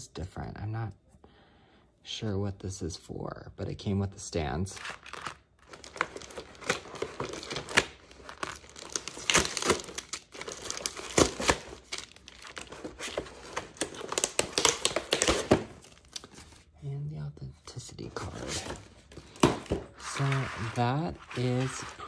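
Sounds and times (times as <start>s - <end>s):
cardboard packaging rustling: 4.8s - 16.8s, 18.0s - 22.0s
plastic bags crinkling: 5.0s - 16.7s.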